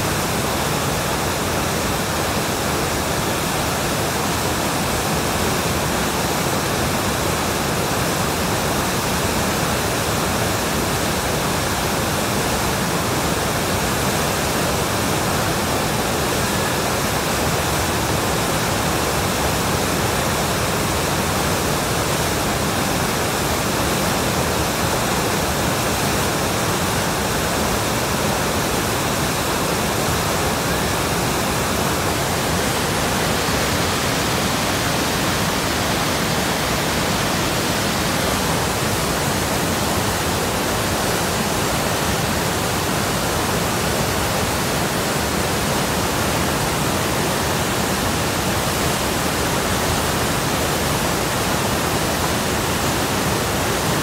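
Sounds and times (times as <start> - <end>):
river rushing over rocks: 0.0 - 54.0.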